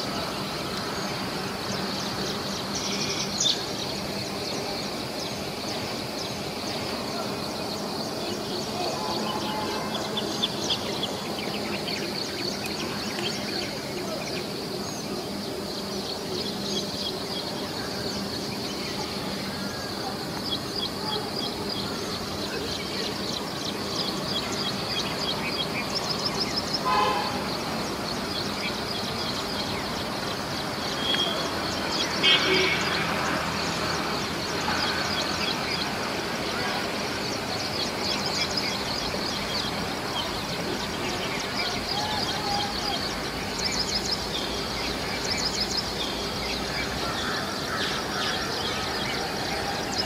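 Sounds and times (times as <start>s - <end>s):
birds chirping: 0.0s - 50.0s
high train horn toot: 8.9s - 10.1s, 26.8s - 27.5s.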